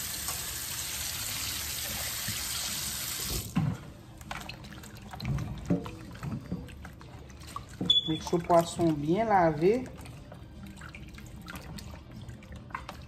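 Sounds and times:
faucet running into steel sink: 0.0s - 3.6s.

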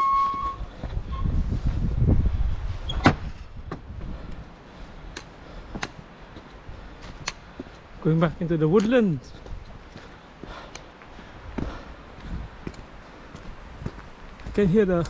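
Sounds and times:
wind rumbling on microphone: 0.3s - 8.5s, 9.2s - 15.0s
footsteps on gravel: 5.2s - 15.0s.

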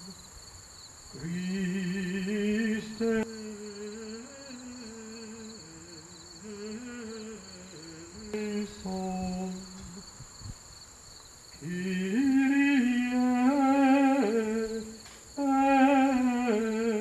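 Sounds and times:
high-pitched buzz: 1.2s - 10.2s.

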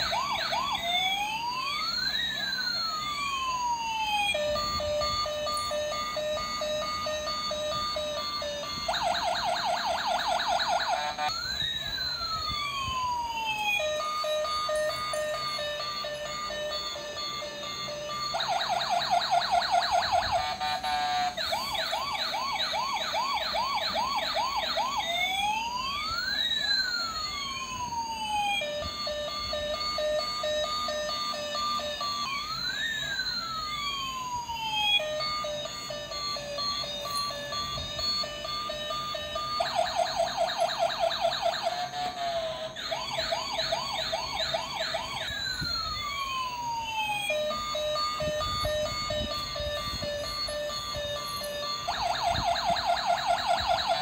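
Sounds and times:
toy police siren: 0.0s - 54.0s
electronic beeping: 4.2s - 12.7s, 34.8s - 54.0s.

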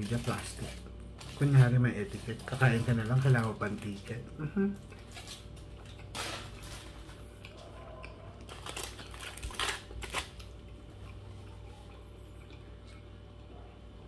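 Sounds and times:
foil wrapper crinkling: 0.0s - 7.6s, 8.3s - 11.1s
low steady hum: 0.0s - 14.0s.

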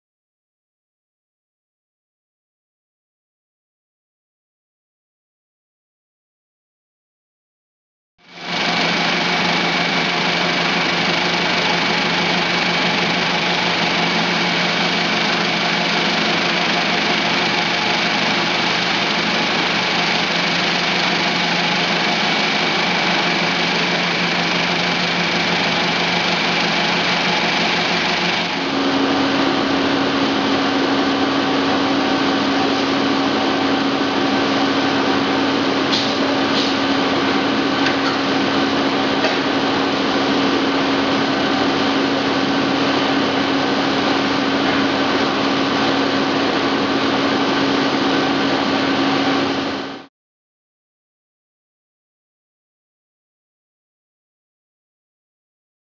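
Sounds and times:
vibratory deburring machine running: 8.2s - 50.1s
machine low hum: 8.3s - 50.1s.

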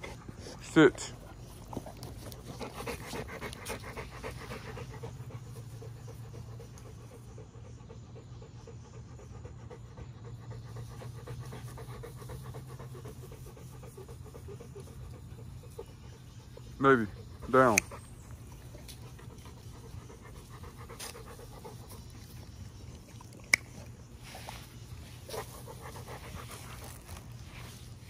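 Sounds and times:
dog panting rapidly: 0.0s - 22.8s, 24.8s - 28.0s.

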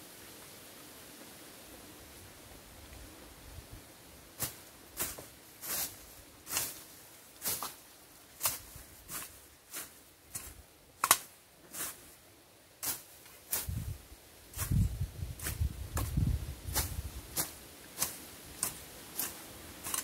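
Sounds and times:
machete slashing through grass: 14.5s - 20.0s.

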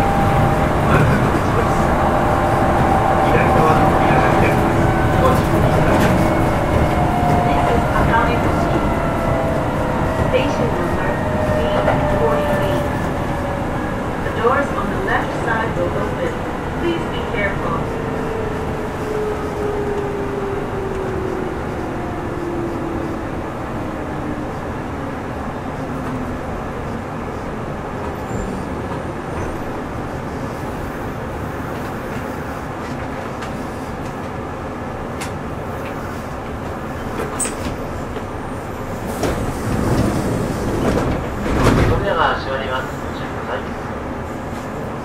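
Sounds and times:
train rolling noise: 0.0s - 45.0s.

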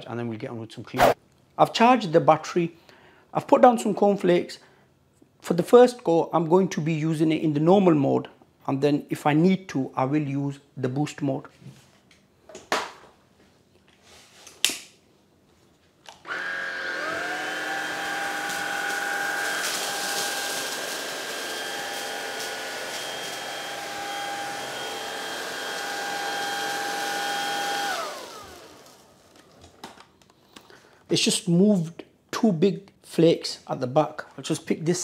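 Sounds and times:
stick vacuum motor whining: 16.2s - 29.5s.

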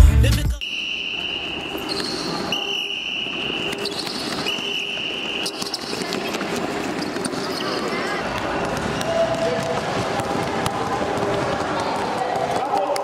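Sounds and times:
music: 0.0s - 0.6s
gym hall noise: 0.0s - 13.0s
basketballs bouncing on court floor: 3.3s - 13.0s.

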